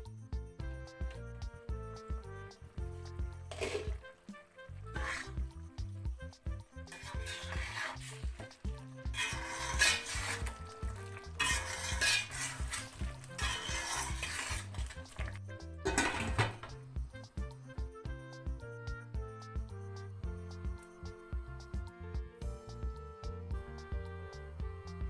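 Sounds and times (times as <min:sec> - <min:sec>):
background music: 0:00.0 - 0:25.0
metal spatula scraping pot: 0:03.4 - 0:04.2, 0:04.8 - 0:05.6, 0:06.4 - 0:16.8.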